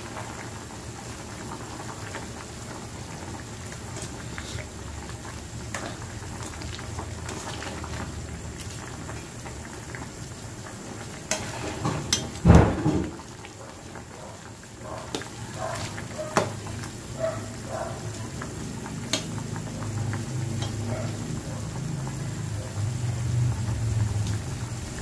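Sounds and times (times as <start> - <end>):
broth bubbling in a pot: 0.0 - 25.0
ladle stirring: 5.7 - 9.3, 11.3 - 12.4.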